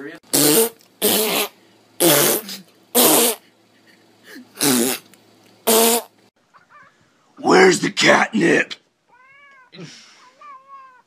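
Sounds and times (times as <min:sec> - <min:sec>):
people blowing raspberries: 0:00.3 - 0:03.4, 0:04.3 - 0:05.1.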